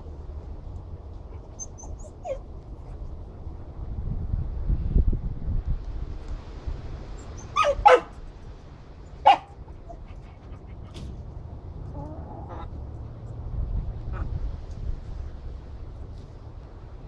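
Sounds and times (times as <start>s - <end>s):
sharp animal calls: 7.4s - 8.1s.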